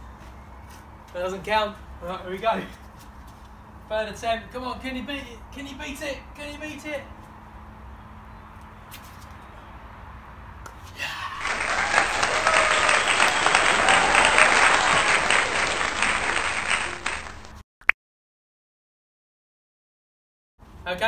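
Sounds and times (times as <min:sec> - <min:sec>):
crowd cheering and applauding: 0:11.3 - 0:17.6.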